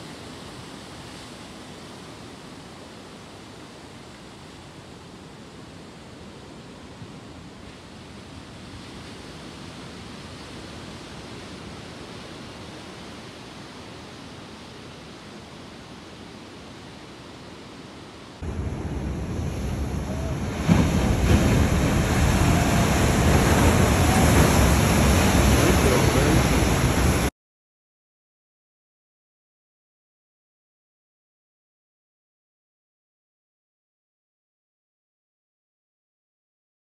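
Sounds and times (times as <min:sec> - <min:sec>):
ocean waves breaking: 0:00.0 - 0:27.3.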